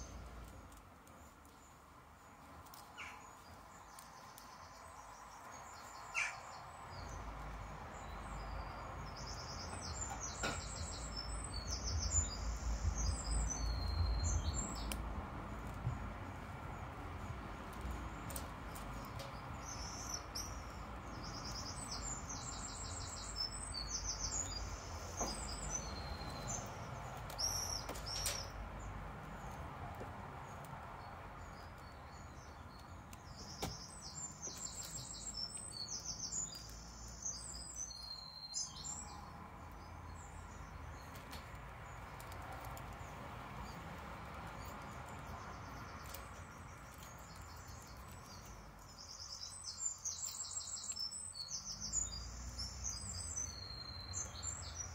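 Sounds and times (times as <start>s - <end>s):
songbird trilling: 5.9s - 6.6s.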